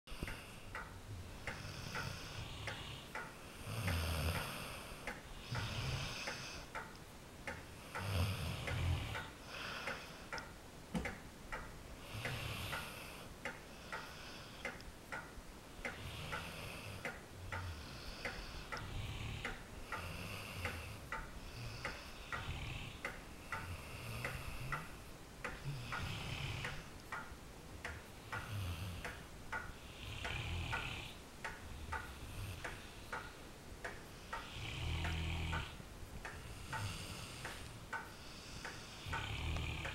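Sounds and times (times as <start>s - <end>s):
steady ticking: 0.1s - 39.9s
dog snoring: 3.6s - 6.7s, 7.9s - 10.1s, 12.0s - 13.2s, 16.0s - 17.0s, 17.6s - 23.0s, 25.6s - 26.9s, 28.4s - 29.0s, 29.8s - 31.2s, 34.3s - 35.8s, 38.3s - 39.9s.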